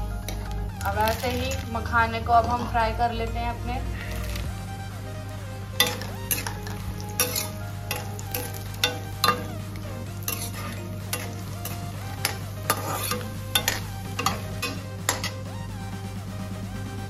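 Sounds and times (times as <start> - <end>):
frying sizzle: 0.0 - 17.0
spoon scraping and clinking pan: 5.8 - 15.4.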